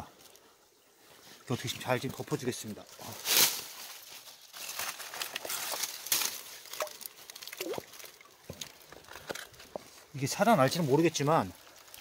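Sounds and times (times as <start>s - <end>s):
water splashing: 5.4s - 9.6s
stones knocking underwater: 6.7s - 9.0s.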